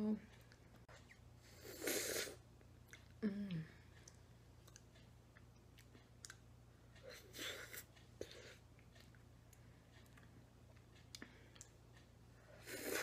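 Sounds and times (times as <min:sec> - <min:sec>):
person humming mm: 0:03.2 - 0:03.8.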